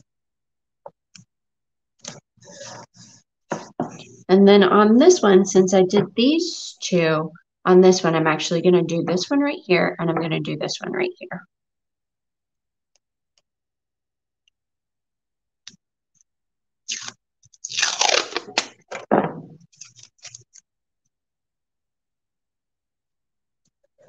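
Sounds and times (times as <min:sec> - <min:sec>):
masking tape tearing: 0:16.9 - 0:18.8.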